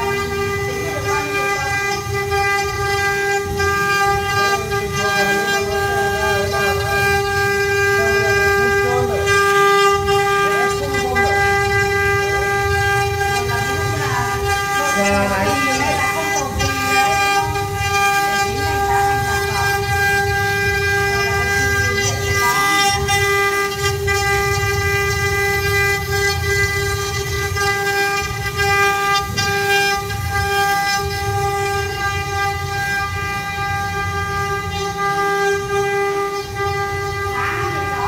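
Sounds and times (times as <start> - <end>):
router spindle whine: 0.0 - 38.0.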